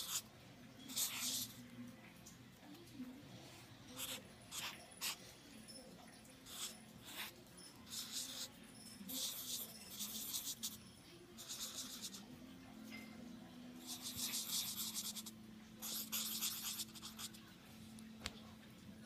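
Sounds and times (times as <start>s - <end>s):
marker scratching on paper: 0.0s - 0.3s, 0.9s - 1.6s, 4.0s - 5.3s, 6.5s - 10.8s, 11.4s - 12.3s, 13.8s - 17.4s.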